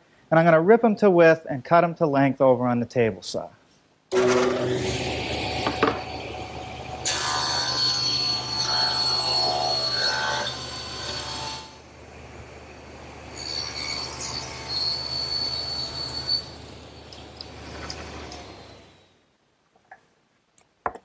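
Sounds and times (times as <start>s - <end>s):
table saw blade whining in wood: 4.1s - 11.8s, 12.8s - 19.1s.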